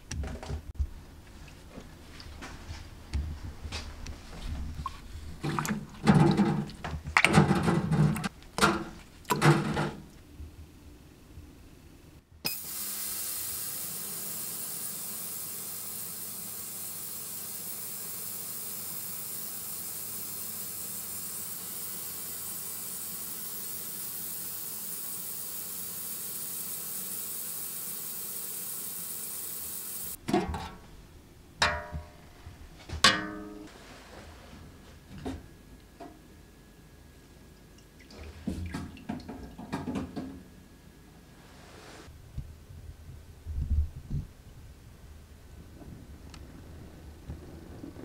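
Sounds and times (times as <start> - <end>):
small water splashes: 5.4 - 7.4
ultrasonic cleaner hissing: 12.5 - 30.2.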